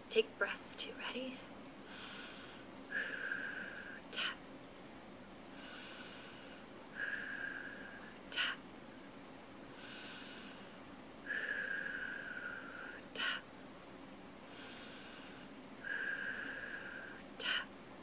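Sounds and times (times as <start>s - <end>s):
woman breathing slowly: 1.8s - 4.5s, 5.5s - 8.7s, 9.6s - 13.5s, 14.4s - 17.8s.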